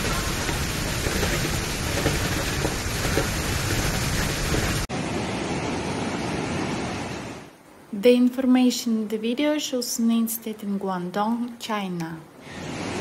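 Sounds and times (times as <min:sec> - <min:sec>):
floodwater rushing through channel: 0:00.0 - 0:05.4
storm wind gusting: 0:00.0 - 0:07.6
heavy rain: 0:00.0 - 0:07.9.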